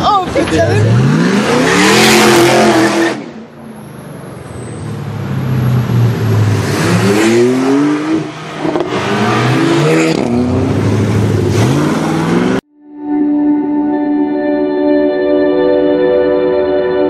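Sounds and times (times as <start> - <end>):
car engine revving hard: 0.6 - 3.4, 5.2 - 12.6.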